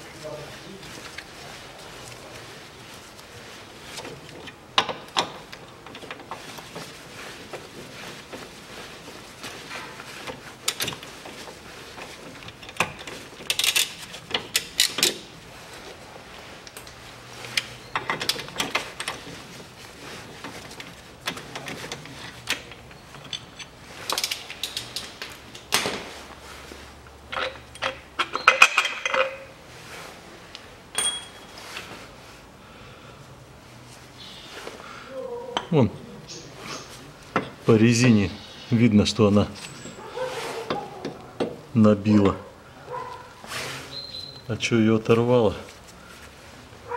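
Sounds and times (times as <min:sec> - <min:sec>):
metal clinks of tool and bolts: 0:12.5 - 0:15.2, 0:22.5 - 0:25.6, 0:27.3 - 0:29.5, 0:30.9 - 0:31.6.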